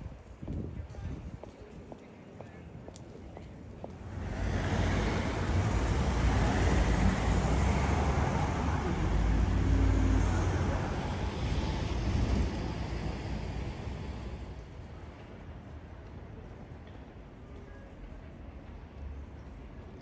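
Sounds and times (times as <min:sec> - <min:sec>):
cars passing close by: 0:04.0 - 0:14.7.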